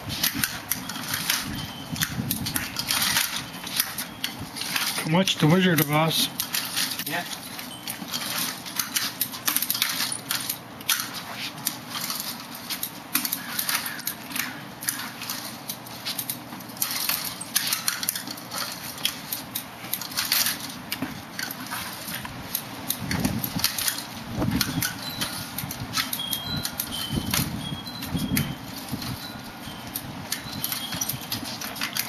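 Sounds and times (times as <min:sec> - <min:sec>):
walker frame clicking and rattling: 0:00.0 - 0:32.0
shoes shuffling: 0:10.0 - 0:32.0.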